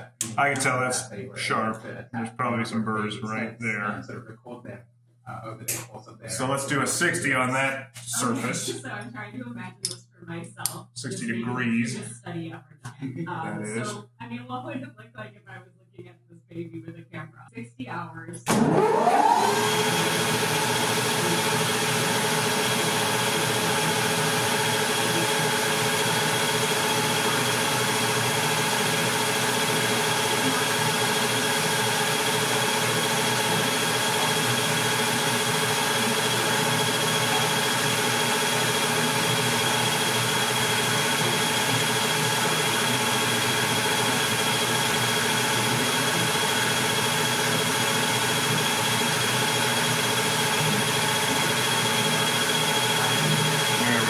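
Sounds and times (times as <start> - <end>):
metal lathe running: 18.5 - 54.0.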